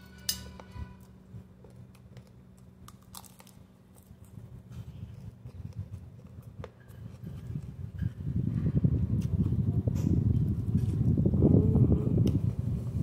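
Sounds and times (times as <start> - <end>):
chewing and crunching lettuce: 1.0 - 7.9, 10.3 - 13.0
low rumble: 4.0 - 13.0.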